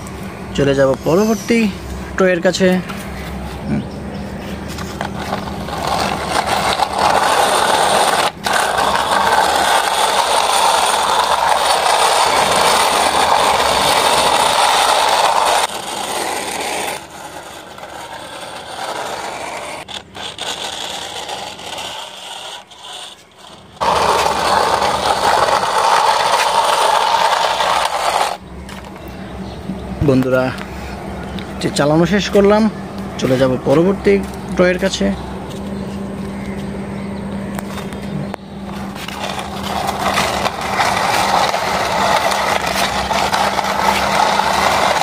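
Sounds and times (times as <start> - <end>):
toy car wheels scraping concrete: 0.0 - 3.6, 4.4 - 28.9, 38.6 - 45.0.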